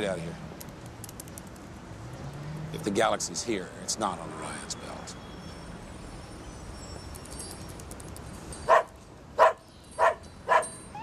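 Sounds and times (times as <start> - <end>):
faint city street background: 0.0 - 11.0
dog barking sharply: 8.7 - 10.7.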